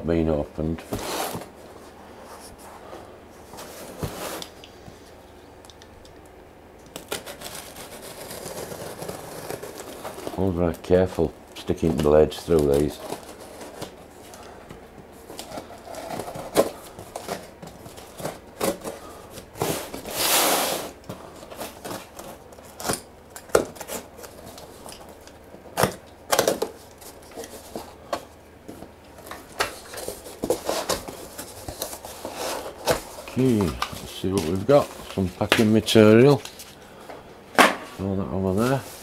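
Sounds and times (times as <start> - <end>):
knife slitting packing tape: 6.9 - 10.3.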